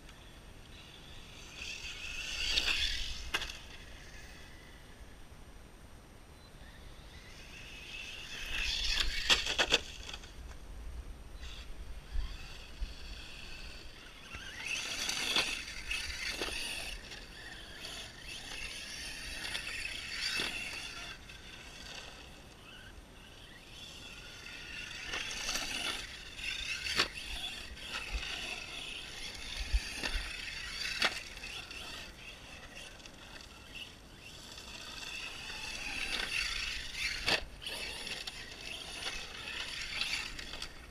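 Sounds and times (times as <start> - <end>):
electric motor whine: 0.0 - 5.3, 6.6 - 10.6, 11.4 - 40.9
dirt and gravel clicks: 12.2 - 22.7, 23.8 - 40.9.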